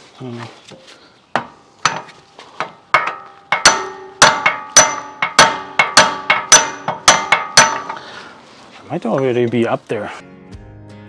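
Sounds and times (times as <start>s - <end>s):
hammer striking steel: 1.4s - 8.1s.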